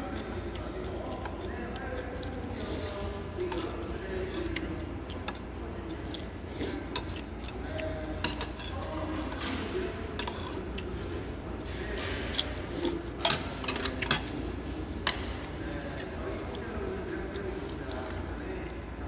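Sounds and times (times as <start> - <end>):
utensils scraping a bowl: 6.1 - 9.6, 10.2 - 11.0.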